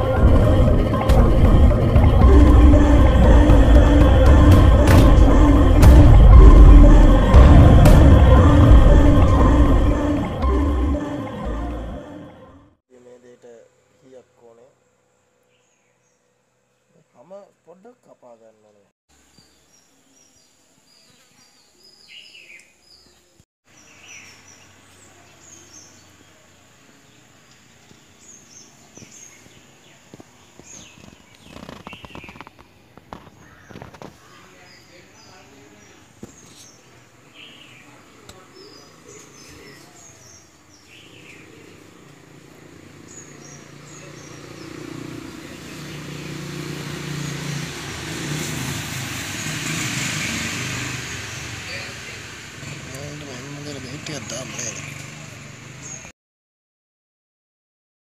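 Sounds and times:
motor vehicle engine hum: 0:00.0 - 0:12.6, 0:41.1 - 0:56.1
small birds chirping: 0:19.2 - 0:47.4.

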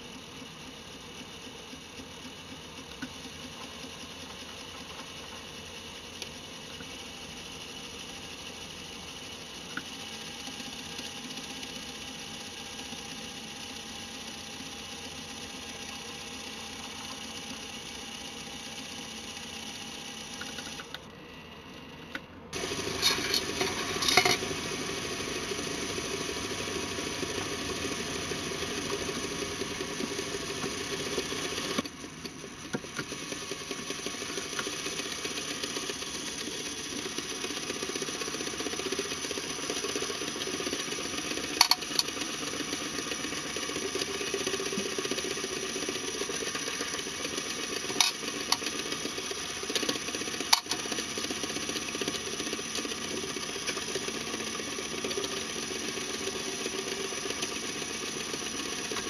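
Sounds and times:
small electric motor whirring: 0:00.0 - 0:59.0
plastic pistons rattling: 0:22.9 - 0:24.4, 0:41.2 - 0:42.4, 0:46.4 - 0:52.6.

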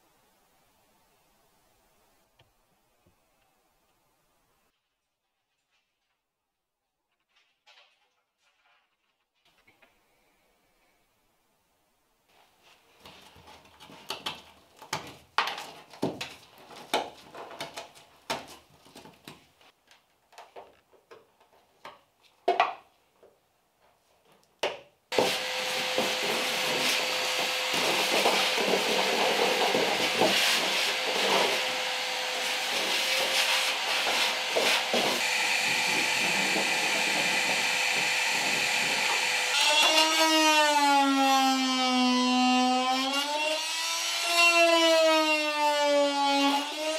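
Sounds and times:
vacuum cleaner running: 0:25.1 - 0:40.2.

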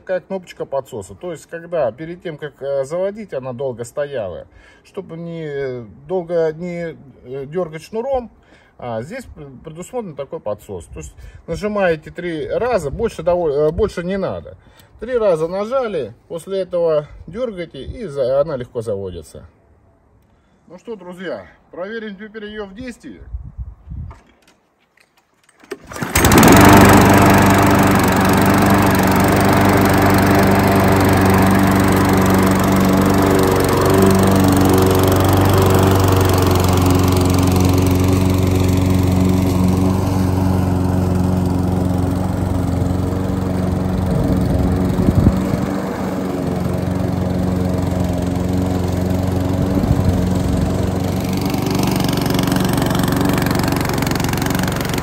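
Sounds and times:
pull cord: 0:24.1 - 0:26.6
lawn mower engine running: 0:25.6 - 0:55.0.

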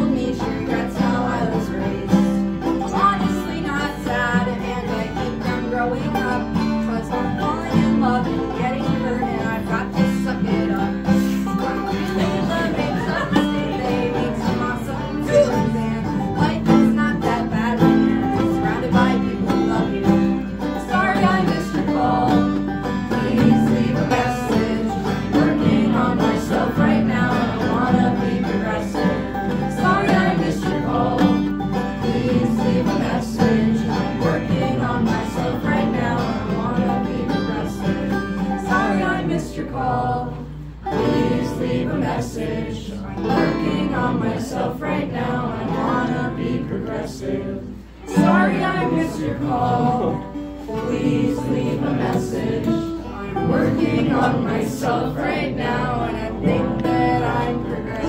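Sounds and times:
person singing: 0:00.0 - 0:31.4
acoustic guitar strumming: 0:00.0 - 0:58.0
banjo: 0:00.0 - 0:58.0.

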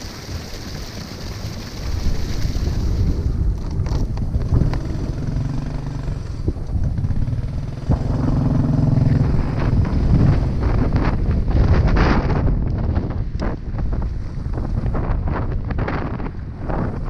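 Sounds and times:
motorcycle engine riding off: 0:00.6 - 0:12.4.

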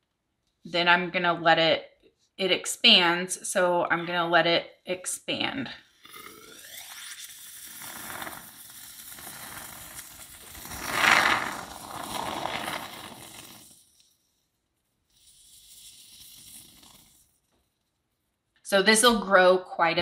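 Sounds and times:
spray foam hissing: 0:06.6 - 0:14.0, 0:15.1 - 0:17.2.

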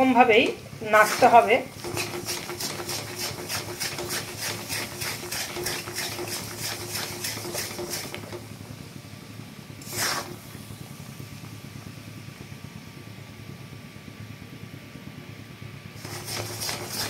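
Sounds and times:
steady low hum: 0:00.0 - 0:17.0
metal spatula scraping metal pan: 0:01.0 - 0:08.2, 0:16.0 - 0:17.0.

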